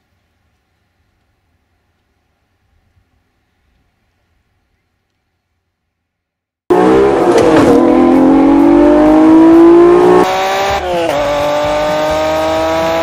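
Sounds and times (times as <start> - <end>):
car engine accelerating hard: 6.7 - 13.0.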